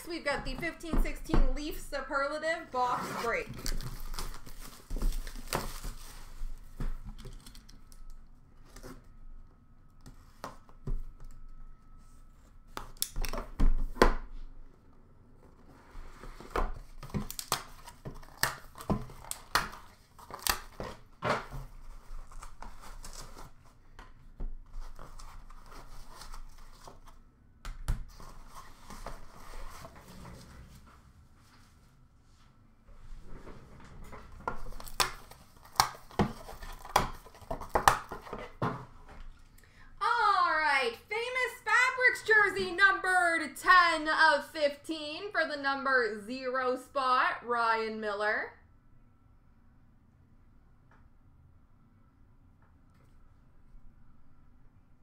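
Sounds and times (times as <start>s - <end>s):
plastic wrap tearing and crinkling: 3.5s - 6.6s, 16.8s - 21.1s, 34.5s - 38.4s.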